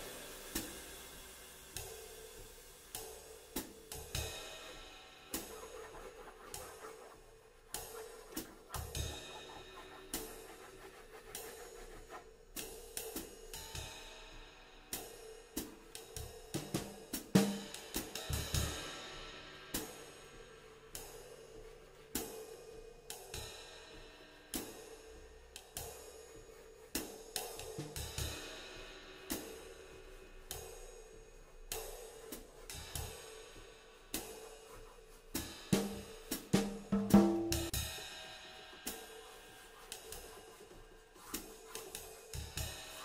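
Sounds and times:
cymbal and hi-hat strokes: 0:00.0 - 0:43.0
snare and bass drum hits: 0:35.7 - 0:37.8.

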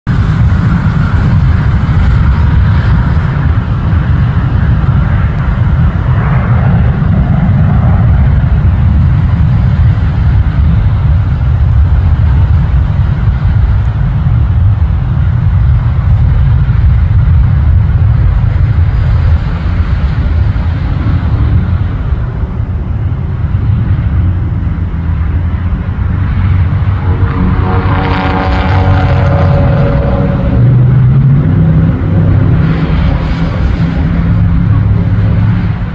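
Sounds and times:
aircraft low rumble: 0:00.0 - 0:35.9
jet engines whining: 0:00.1 - 0:35.9.

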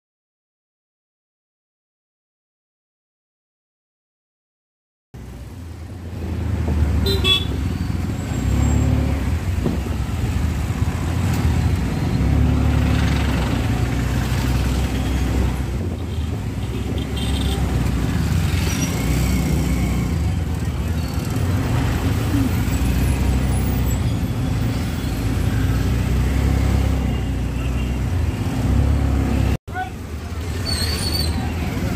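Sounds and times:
auto-rickshaw engine rumble: 0:05.2 - 0:31.9
road noise: 0:05.2 - 0:31.9
vehicle horns tooting: 0:07.0 - 0:08.9, 0:16.1 - 0:17.7.

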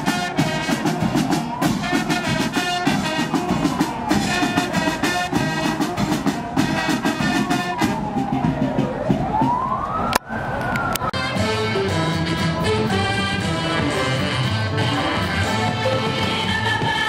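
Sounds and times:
brass band with drums: 0:00.0 - 0:09.8, 0:11.1 - 0:17.0
siren wailing: 0:01.0 - 0:11.8.

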